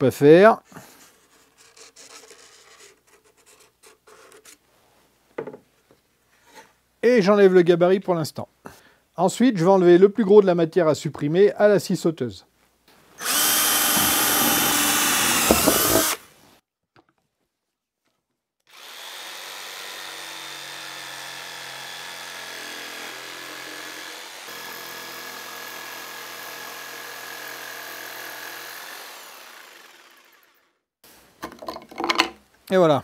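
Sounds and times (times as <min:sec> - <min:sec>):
cordless drill boring: 0:13.2 - 0:16.2, 0:18.7 - 0:30.6
jigsaw cutting: 0:13.2 - 0:16.2, 0:18.7 - 0:30.7.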